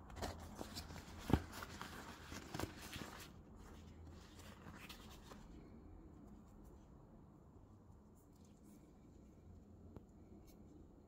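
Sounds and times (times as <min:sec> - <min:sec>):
leather rustling and scratching: 0:00.2 - 0:05.5.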